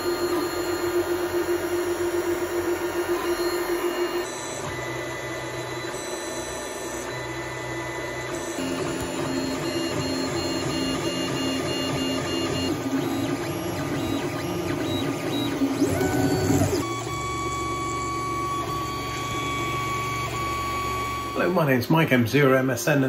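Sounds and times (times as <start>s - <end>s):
stepper motors whining: 0.0s - 21.4s.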